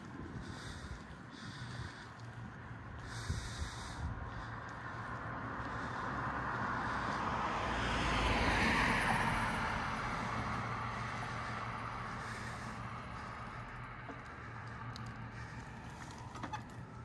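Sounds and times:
car driving past: 5.1s - 17.0s.

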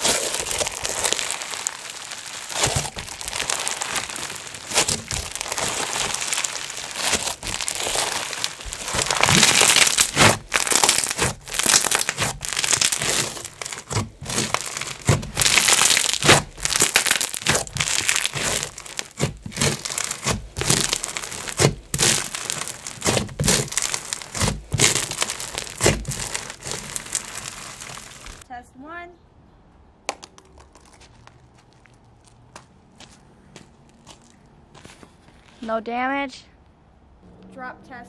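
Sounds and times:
slime beads crunching: 0.0s - 28.4s.

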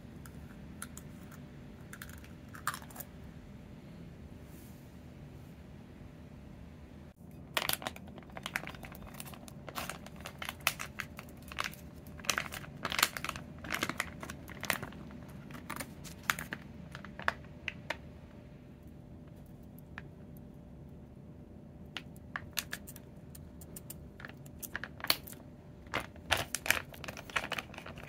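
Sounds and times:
foil pouch crinkling: 7.5s - 17.9s, 22.0s - 28.0s.

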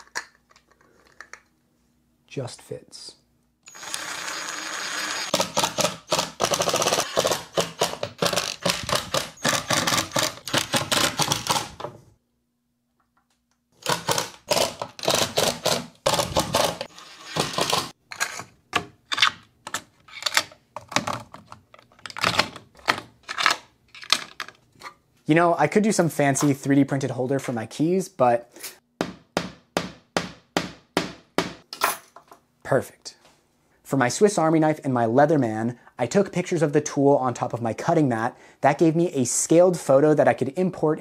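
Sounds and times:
impact driver hammering: 5.3s - 11.8s.

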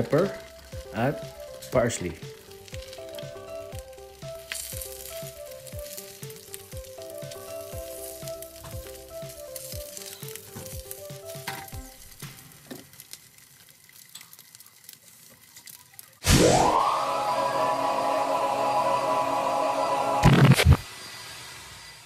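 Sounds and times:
simple background melody: 0.0s - 12.6s, 16.4s - 20.3s
eggs sizzling in a pan: 0.0s - 20.7s.

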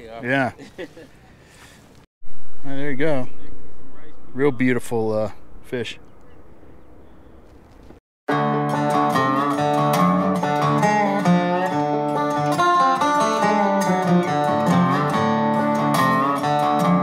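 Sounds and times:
plucked acoustic guitar music: 8.3s - 17.0s.

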